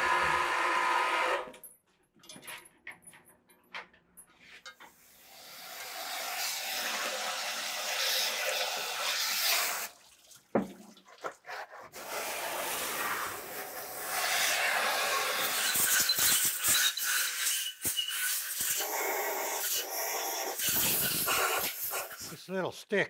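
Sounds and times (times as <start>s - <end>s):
pressure washer spray hissing: 18.2s - 22.4s.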